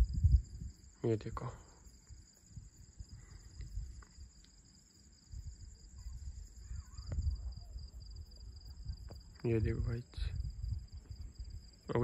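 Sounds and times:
night insects chirping: 0.0s - 12.0s
faint low rumble: 5.2s - 12.0s.

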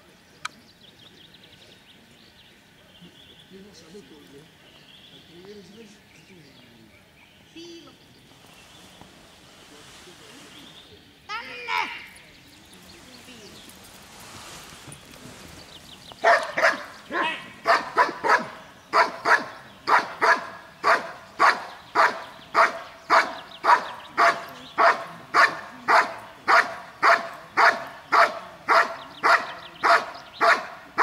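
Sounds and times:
dog barking: 16.2s - 31.0s.

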